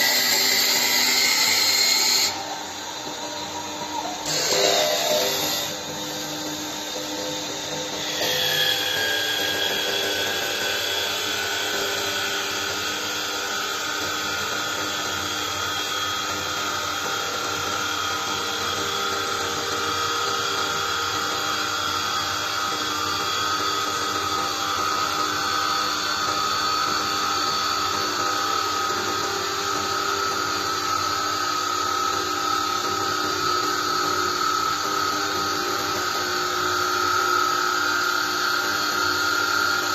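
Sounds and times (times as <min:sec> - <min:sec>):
wood being cut hissing: 0:00.0 - 0:13.4
lathe machine whine: 0:00.0 - 0:39.9.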